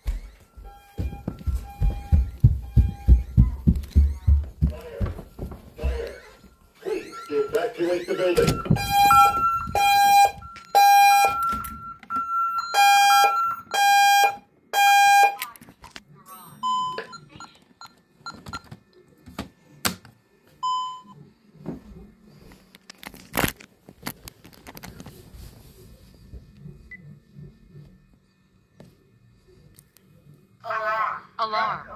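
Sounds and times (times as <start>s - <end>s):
faint low hum: 0.0s - 7.4s, 15.8s - 31.9s
fire alarm harsh beeps: 0.6s - 3.2s, 8.2s - 15.5s.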